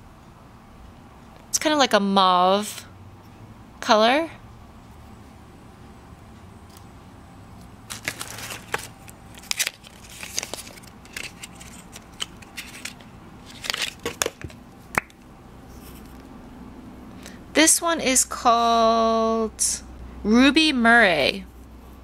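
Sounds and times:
tissue paper crinkling: 0:07.9 - 0:14.2
cardboard boxes being handled: 0:07.9 - 0:14.6.

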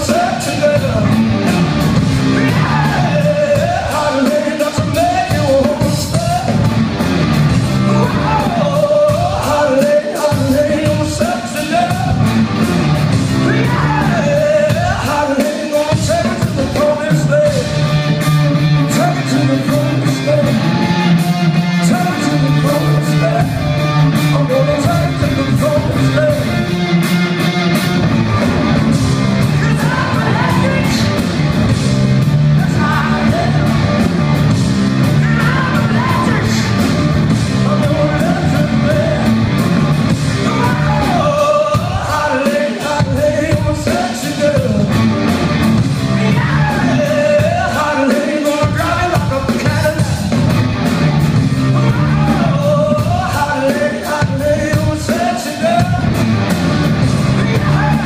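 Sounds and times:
man singing: 0:00.0 - 0:06.7, 0:07.8 - 0:12.3, 0:13.4 - 0:17.9, 0:18.5 - 0:26.8, 0:29.4 - 0:31.2, 0:32.5 - 0:34.0, 0:35.0 - 0:39.6, 0:40.3 - 0:45.1, 0:46.1 - 0:50.4, 0:51.7 - 0:56.2, 0:57.2 - 0:58.0
drums: 0:00.0 - 0:58.0
electric guitars: 0:00.0 - 0:58.0
rock band playing live: 0:00.0 - 0:58.0.

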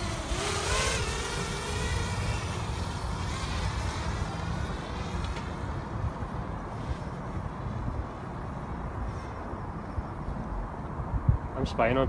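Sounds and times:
drone propellers whining: 0:00.0 - 0:07.1
wind on microphone: 0:00.0 - 0:12.0.

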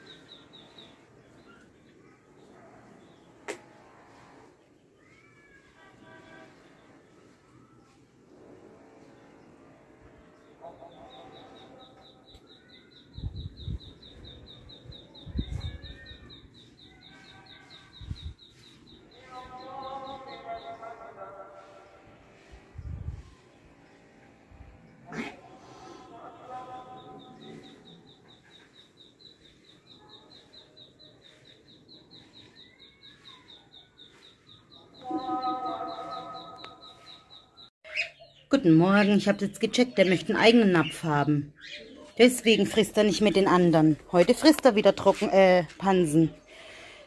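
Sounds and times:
bird chirping: 0:00.0 - 0:01.8, 0:10.6 - 0:21.2, 0:26.7 - 0:45.4.

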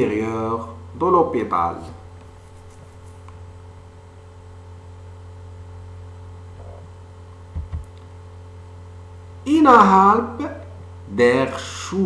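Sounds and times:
low electrical hum: 0:00.0 - 0:12.0
low thump: 0:07.5 - 0:07.9.

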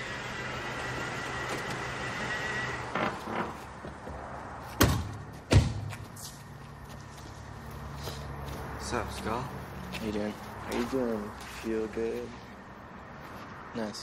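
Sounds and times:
car doors shutting: 0:01.2 - 0:02.0.

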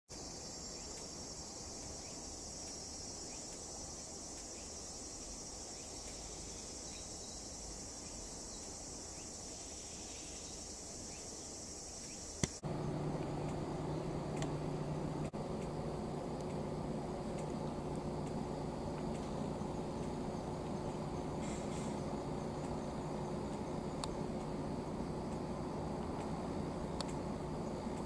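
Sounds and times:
insects chirring: 0:00.1 - 0:28.0
low steady hum: 0:00.2 - 0:28.0
sharp click: 0:27.0 - 0:27.2.

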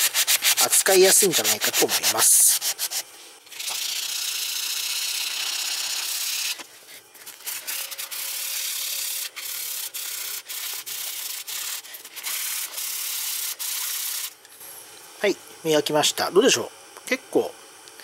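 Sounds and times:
sandpaper scratching on metal: 0:00.0 - 0:06.6, 0:07.2 - 0:14.3.

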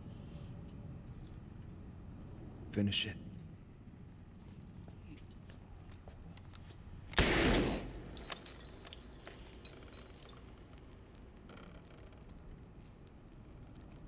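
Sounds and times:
gunshot: 0:07.2 - 0:08.2.

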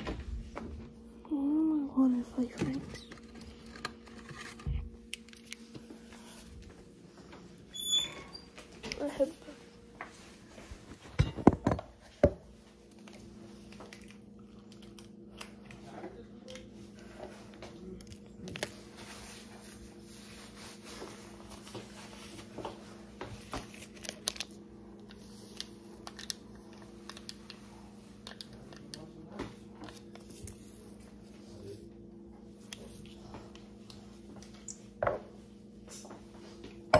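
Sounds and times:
steady low hum: 0:00.0 - 0:36.9
packaging rustling and crinkling: 0:23.4 - 0:24.6.

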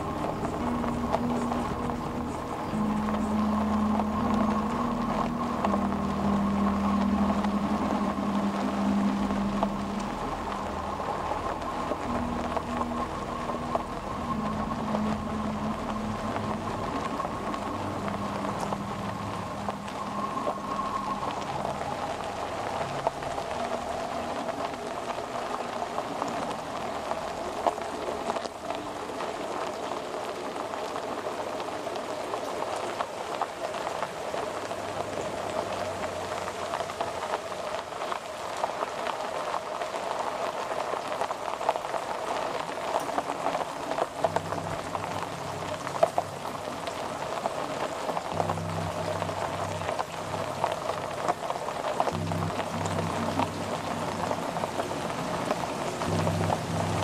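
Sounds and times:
low held tones: 0:00.0 - 0:28.8, 0:42.6 - 0:57.0
mid-pitched drone: 0:00.0 - 0:29.1, 0:42.5 - 0:57.0
crackling noise texture: 0:00.0 - 0:57.0.

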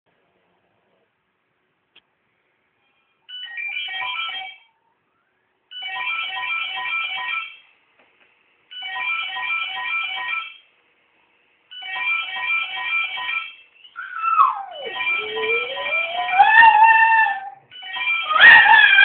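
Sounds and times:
telephone ringtone melody: 0:03.3 - 0:04.7, 0:05.7 - 0:07.6, 0:08.7 - 0:10.6, 0:11.7 - 0:16.9, 0:17.7 - 0:18.4.

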